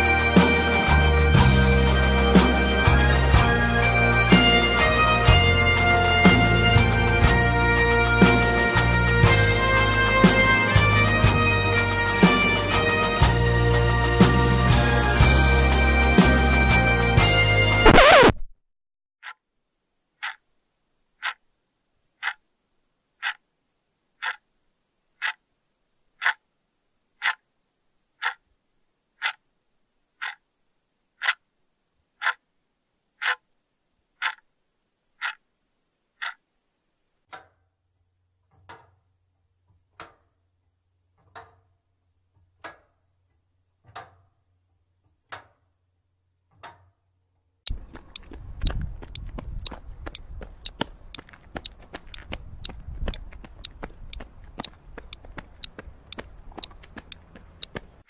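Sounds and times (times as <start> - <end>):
clock ticking: 20.2 - 20.4, 21.2 - 21.4, 22.2 - 22.4, 23.2 - 23.4, 24.2 - 24.4, 25.2 - 25.4, 28.2 - 28.4, 30.2 - 30.4
running footsteps on a road: 47.7 - 58.0.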